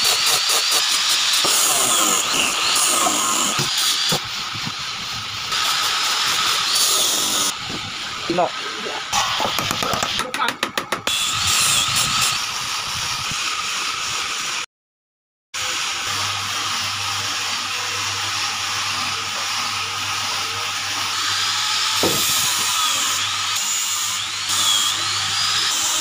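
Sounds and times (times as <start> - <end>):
electric drill running: 0.0 - 10.2, 11.0 - 14.6, 15.6 - 26.0.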